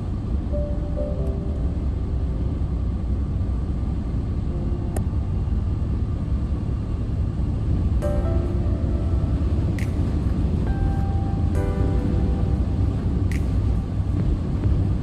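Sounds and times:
car driving rumble: 0.0s - 15.0s
sharp click: 9.7s - 10.4s, 13.3s - 13.9s.

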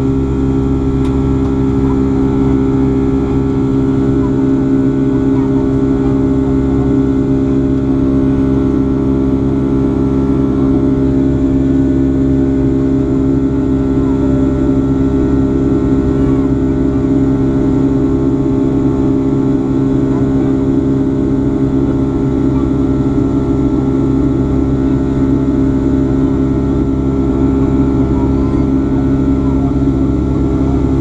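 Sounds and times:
jet engine cabin drone: 0.0s - 31.0s.

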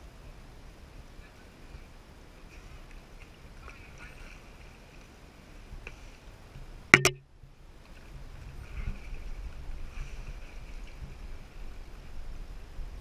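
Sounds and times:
calm water ambience: 0.0s - 13.0s
sharp knock on boat: 7.0s - 7.2s.

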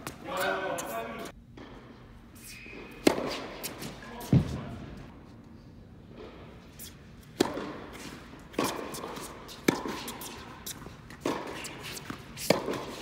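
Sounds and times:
tennis ball struck by rackets: 2.9s - 4.6s, 7.3s - 13.0s.

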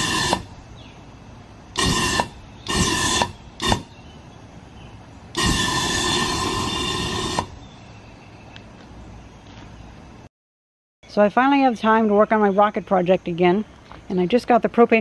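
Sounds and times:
rocket engine firing in bursts: 0.0s - 0.6s, 1.8s - 4.0s, 5.4s - 7.6s.

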